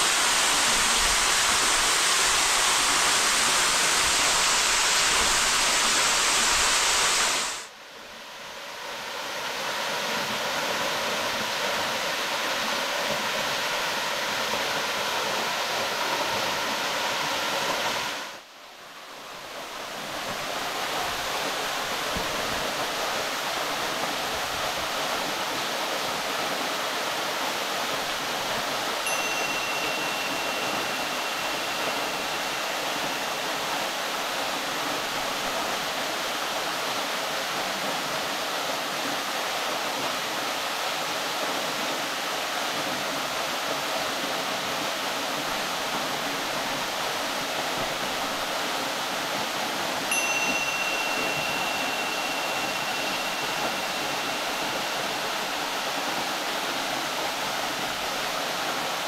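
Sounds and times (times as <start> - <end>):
waterfall rushing into pool: 0.0 - 59.0
thin high tone: 29.0 - 34.5, 50.1 - 57.0.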